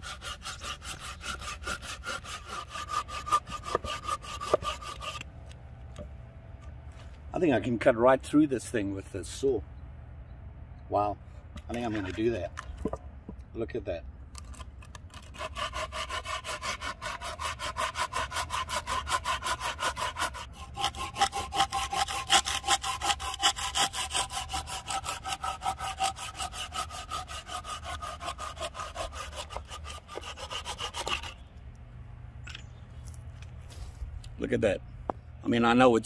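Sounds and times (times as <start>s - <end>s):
folding saw cutting log: 0.0s - 7.2s, 14.4s - 31.5s.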